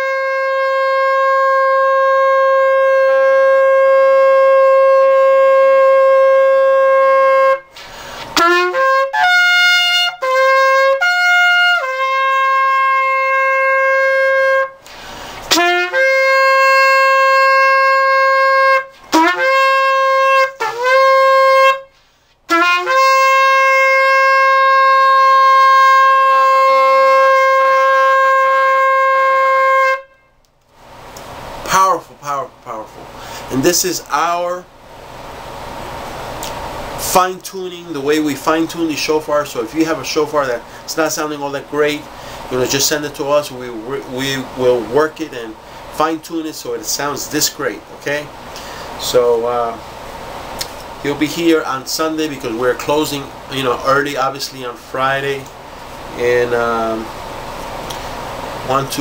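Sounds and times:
shofar blasts: 0.0s - 30.4s.

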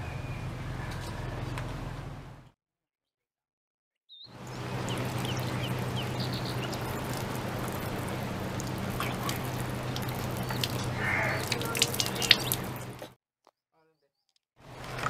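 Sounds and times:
faint bird chirps: 4.1s - 6.8s
water pouring and splashing: 4.3s - 13.2s
steady low hum: 4.4s - 13.0s.

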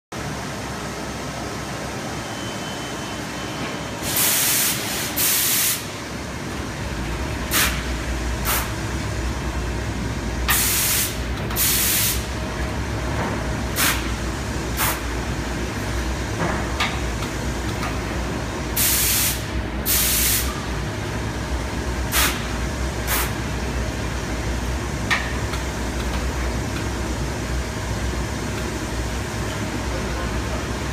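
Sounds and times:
compressed air hisses: 4.0s - 5.9s, 7.5s - 8.7s, 10.5s - 12.3s, 13.8s - 14.1s, 18.8s - 20.6s, 22.1s - 22.5s, 23.1s - 23.4s
pneumatic puffs and clicks: 7.5s - 8.8s, 10.5s - 12.3s, 13.8s - 14.1s, 14.8s - 15.1s, 22.1s - 23.4s.

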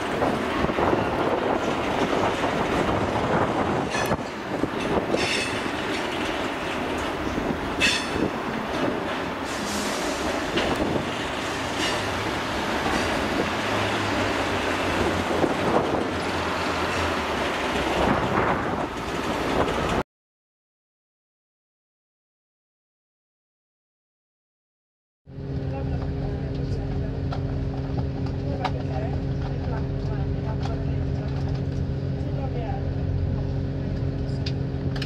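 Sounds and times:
clattering over rail joints: 0.0s - 20.0s
rumble of train wheels: 0.0s - 20.0s, 25.3s - 35.0s
high wheel squeals: 5.0s - 5.8s.

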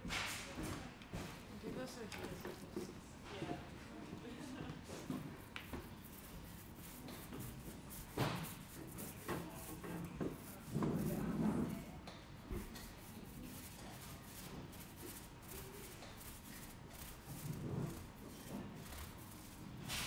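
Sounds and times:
paint roller rubbing in tray: 5.2s - 20.0s.

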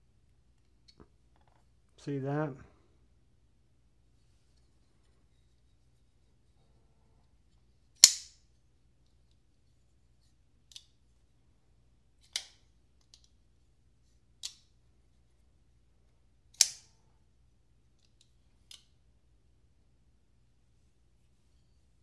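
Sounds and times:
folding knife metallic clicks: 16.6s - 16.9s.

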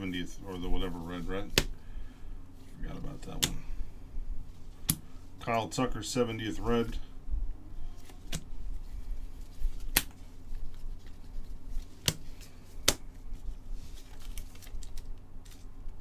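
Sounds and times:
trading cards rustling: 7.8s - 16.0s
cards snapping sharply: 9.8s - 10.2s, 12.0s - 13.1s.

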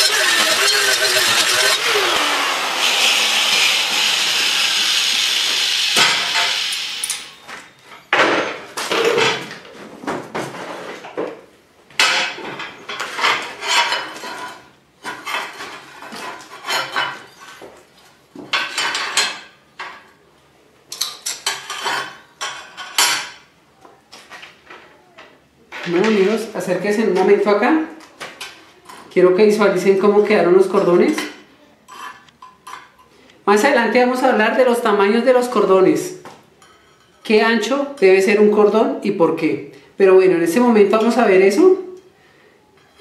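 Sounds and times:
metal scraping and knocking: 0.0s - 1.8s
steady machine noise: 0.0s - 7.5s.

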